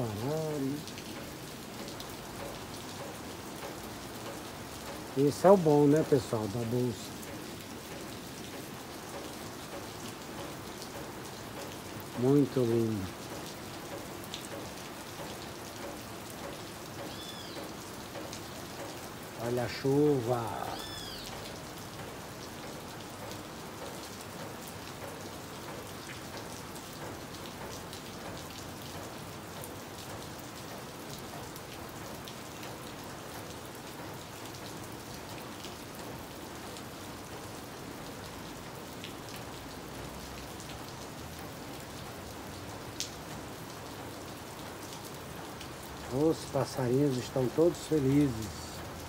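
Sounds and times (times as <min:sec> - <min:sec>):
drops ticking: 0:00.0 - 0:23.4
rain falling: 0:00.0 - 0:49.0.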